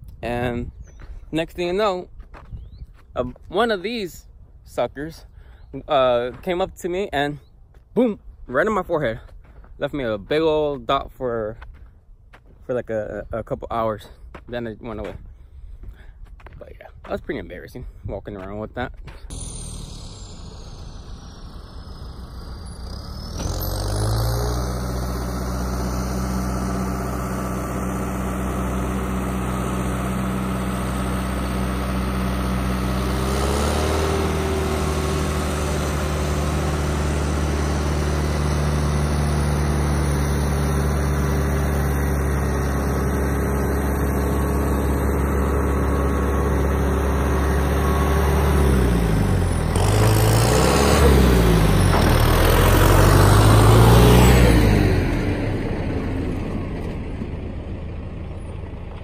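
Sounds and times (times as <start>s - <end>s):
tractor diesel engine running: 18.3s - 59.0s.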